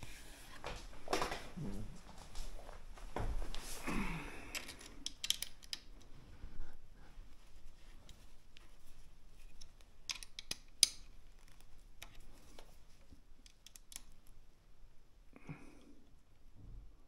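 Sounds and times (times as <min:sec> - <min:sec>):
small clicks of plastic and metal parts: 0:04.5 - 0:06.1, 0:09.4 - 0:14.4.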